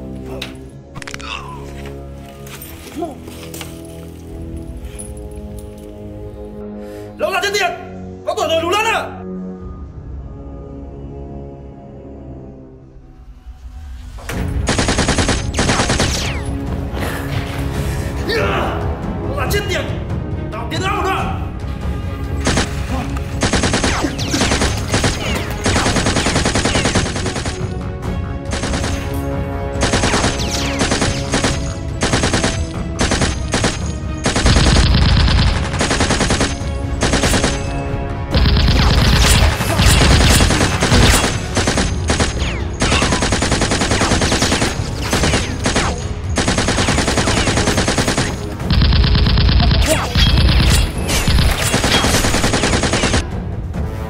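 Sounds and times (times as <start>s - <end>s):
automatic gunfire bursts: 14.7s - 16.2s, 23.4s - 27.8s, 28.5s - 29.1s, 29.8s - 37.8s, 38.4s - 53.2s.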